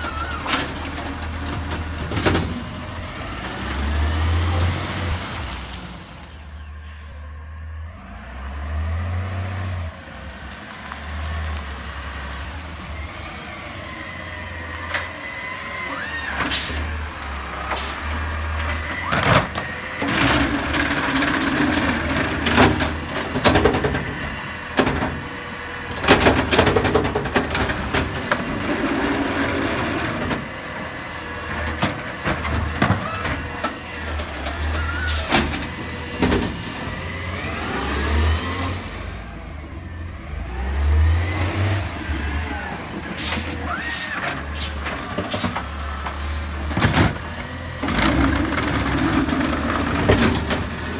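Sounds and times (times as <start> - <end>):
trash cart bangs and knocks: 26.0 - 28.6, 46.7 - 50.9.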